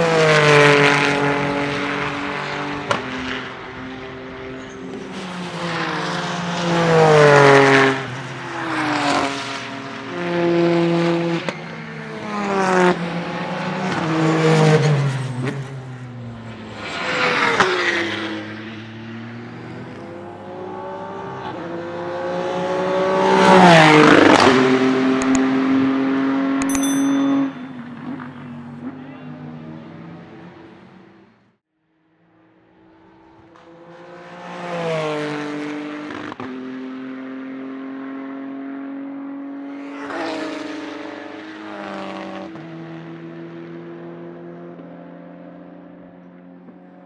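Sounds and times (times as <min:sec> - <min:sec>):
race car engine revving past: 0:00.0 - 0:26.6.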